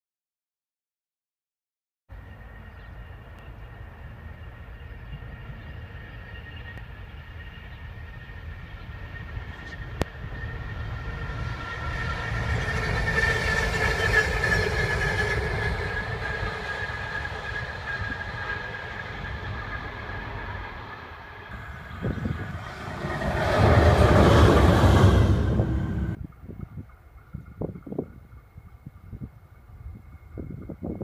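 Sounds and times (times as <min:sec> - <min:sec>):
steady high whine: 0:02.1 - 0:26.4
diesel locomotive rumble: 0:02.1 - 0:30.9
louder diesel locomotive: 0:02.1 - 0:31.0.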